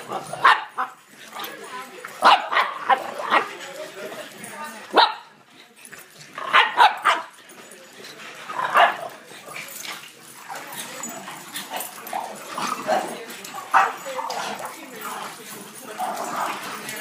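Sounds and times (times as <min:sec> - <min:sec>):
dogs barking: 0:00.0 - 0:01.6, 0:02.2 - 0:03.6, 0:04.9 - 0:05.4, 0:06.3 - 0:07.4, 0:08.4 - 0:09.8, 0:10.5 - 0:14.9.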